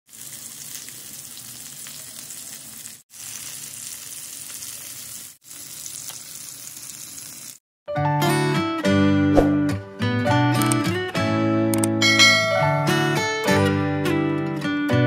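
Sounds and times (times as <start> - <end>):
fish sizzling in oil: 0.1 - 7.6.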